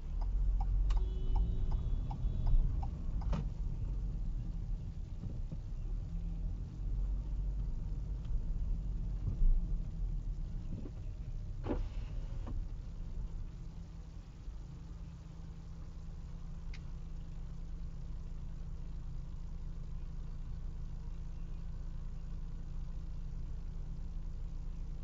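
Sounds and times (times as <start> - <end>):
turn signal clicking: 0.0 - 13.9, 16.6 - 17.3
road and engine rumble: 0.0 - 25.0.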